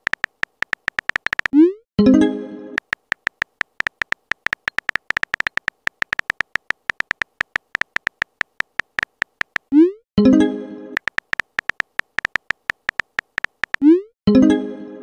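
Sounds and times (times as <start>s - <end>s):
keyboard tap clicks: 0.0s - 1.6s, 2.8s - 9.7s, 11.0s - 13.8s.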